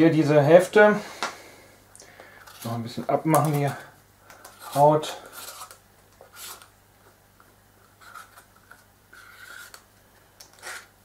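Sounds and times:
vegetable peeler scraping squash: 0:04.5 - 0:06.7, 0:09.1 - 0:09.8, 0:10.5 - 0:11.0.

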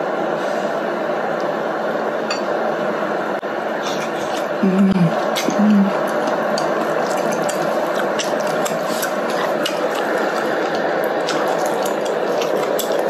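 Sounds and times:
broth boiling: 0:03.7 - 0:13.0.

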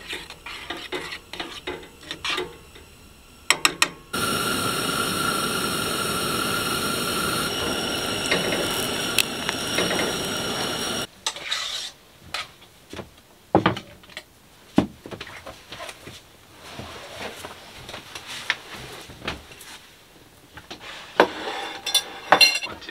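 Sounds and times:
camp stove burner hissing: 0:00.0 - 0:11.1.

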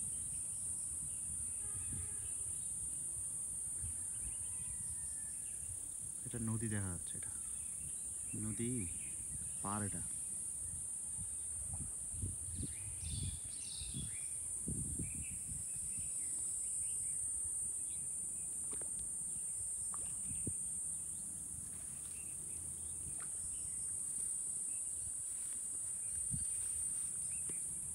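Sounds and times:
insect chorus drone: 0:00.0 - 0:27.9.

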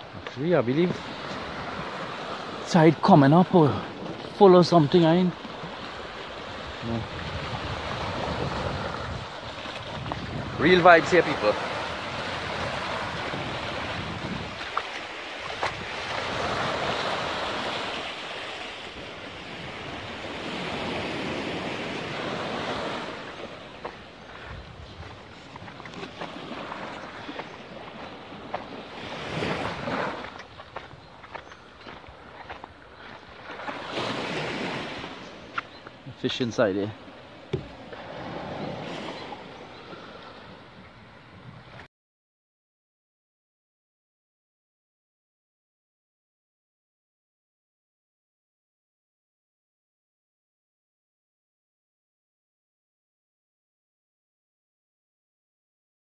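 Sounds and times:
waves breaking on rocks and beach: 0:00.0 - 0:41.8
wind on microphone: 0:05.6 - 0:17.9, 0:19.0 - 0:32.8, 0:37.5 - 0:41.9.

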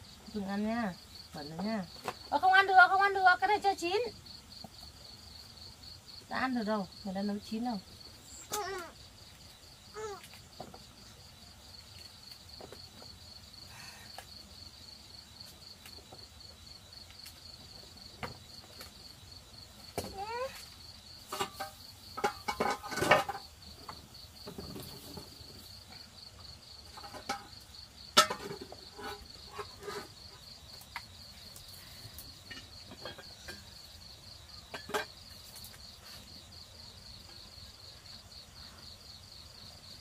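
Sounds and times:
insects trilling: 0:00.0 - 0:40.0
cooking pots clattering: 0:21.3 - 0:25.5, 0:26.9 - 0:30.4, 0:32.4 - 0:33.8, 0:34.7 - 0:35.3.

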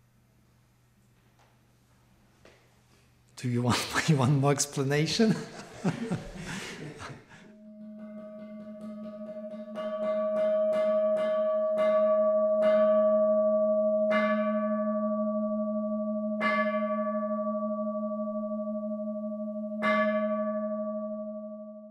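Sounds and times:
lingering bell ring: 0:04.9 - 0:21.4
bowl bell strikes: 0:07.5 - 0:21.9.

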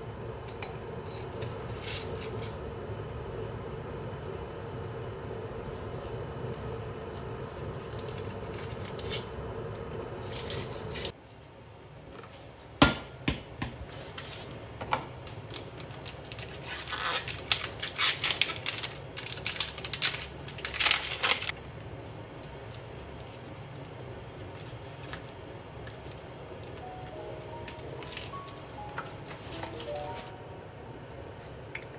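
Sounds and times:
steady hum: 0:00.0 - 0:16.4, 0:21.4 - 0:31.9.

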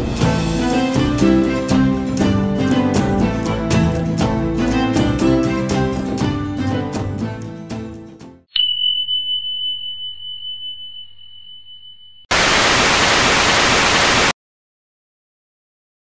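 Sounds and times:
background music: 0:00.0 - 0:08.5
bell ding: 0:08.5 - 0:12.3
loud tv static hiss: 0:12.3 - 0:14.3.

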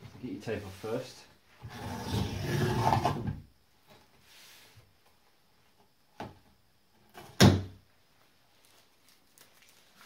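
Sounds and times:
tape being peeled with rips: 0:08.5 - 0:10.0.

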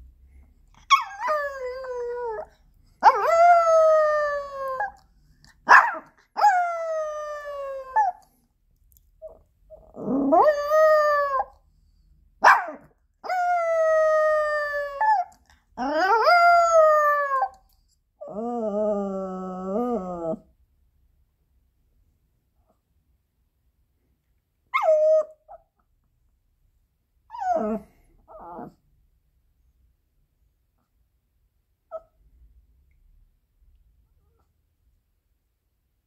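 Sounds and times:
dog yelping: 0:00.8 - 0:01.6, 0:05.7 - 0:06.8.

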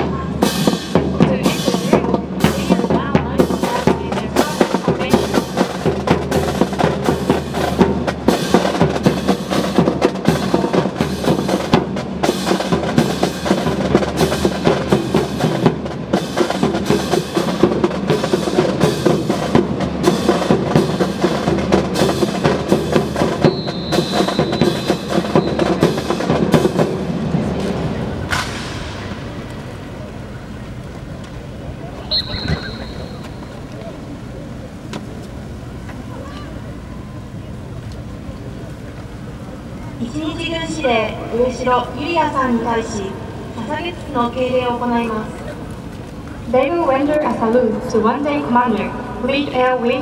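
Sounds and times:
marching snare and bass drums: 0:00.0 - 0:33.7.

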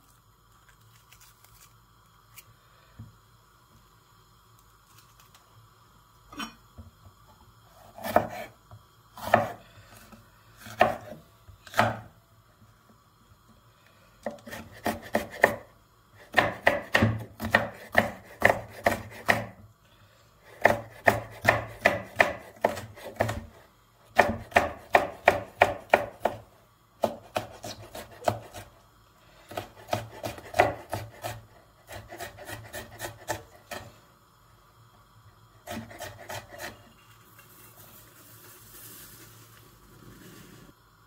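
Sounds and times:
knife chopping on wooden board: 0:08.0 - 0:08.5, 0:10.8 - 0:12.1, 0:14.2 - 0:15.6, 0:16.3 - 0:19.5, 0:20.6 - 0:23.5, 0:24.2 - 0:26.4, 0:27.0 - 0:28.7, 0:29.5 - 0:33.9, 0:35.7 - 0:36.8.

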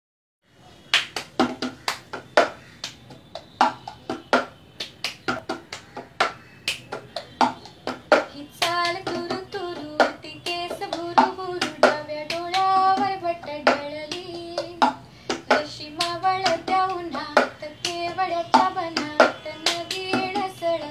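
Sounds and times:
hand claps: 0:00.9 - 0:20.9
woman singing: 0:08.1 - 0:20.9.

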